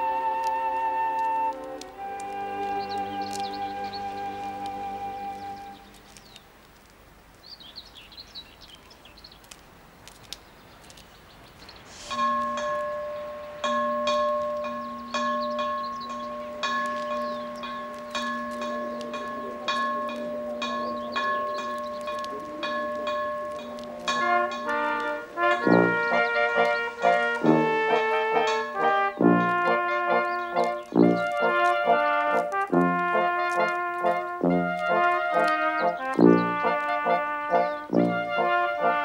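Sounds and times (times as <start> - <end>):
faint bird chirping: 0.0 - 6.5, 7.4 - 9.6, 12.8 - 19.6, 20.2 - 32.1
bell tolling slowly: 12.1 - 30.6.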